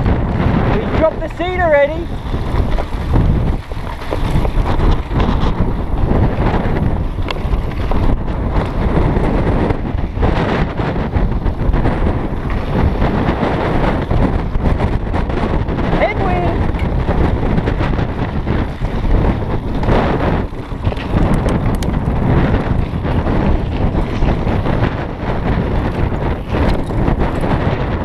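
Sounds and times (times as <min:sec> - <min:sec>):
bike rattling over bumps: 0:00.0 - 0:28.0
tyres rolling over dirt trail: 0:00.0 - 0:28.0
wind buffeting microphone: 0:00.0 - 0:28.0.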